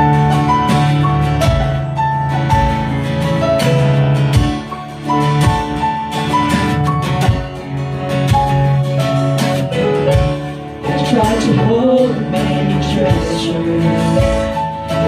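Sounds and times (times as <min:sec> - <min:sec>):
acoustic guitar strumming: 0:00.0 - 0:15.0
person singing: 0:10.8 - 0:15.0.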